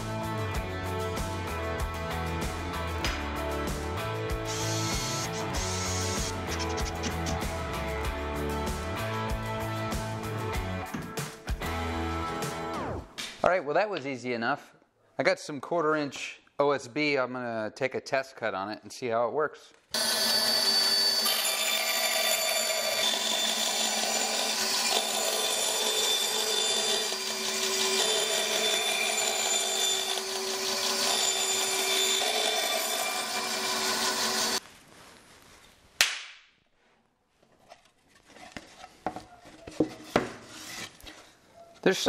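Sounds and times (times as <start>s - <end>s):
bandsaw cutting wood: 4.5s - 7.5s, 20.0s - 34.6s.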